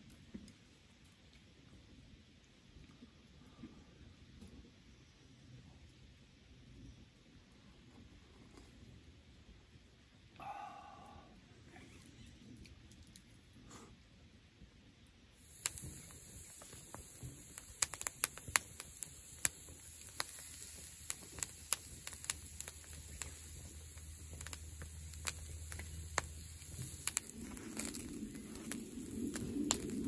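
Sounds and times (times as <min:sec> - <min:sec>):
fire crackling and popping: 0:11.8 - 0:30.0
fire rushing: 0:15.4 - 0:30.0
meat sizzling on grill: 0:15.4 - 0:30.0.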